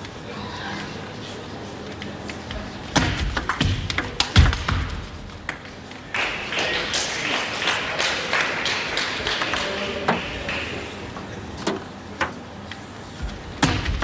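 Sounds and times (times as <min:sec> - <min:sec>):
spectators clapping: 0:05.4 - 0:11.2.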